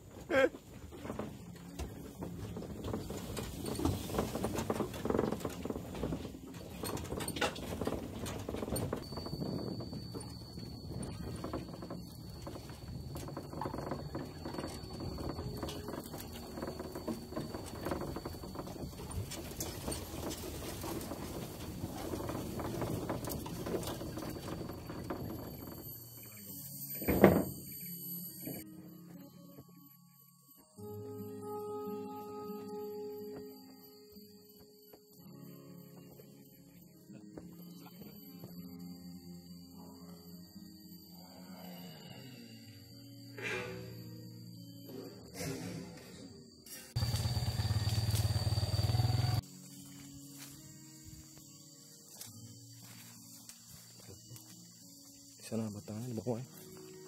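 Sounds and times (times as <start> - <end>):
music: 0.0 - 47.0, 49.4 - 57.0
rustling: 0.9 - 26.0
footsteps on stony dirt path: 47.0 - 50.7.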